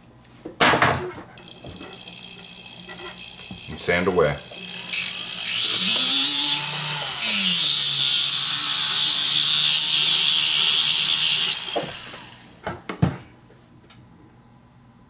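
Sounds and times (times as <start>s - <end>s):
rotary tool motor hum: 1.4s - 12.6s
sanding disc hiss: 1.4s - 12.6s.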